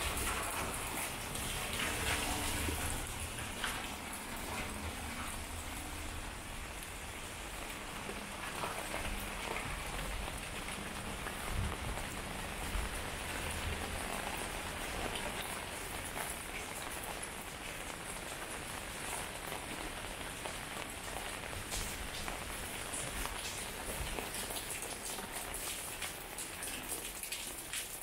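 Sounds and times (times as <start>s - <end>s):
rain on wet concrete: 0.0s - 28.0s.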